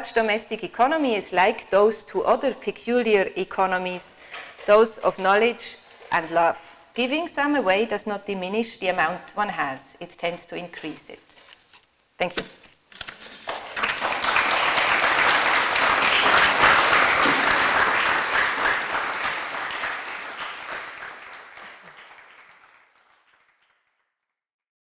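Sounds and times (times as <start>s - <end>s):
audience applauding: 13.5s - 23.9s.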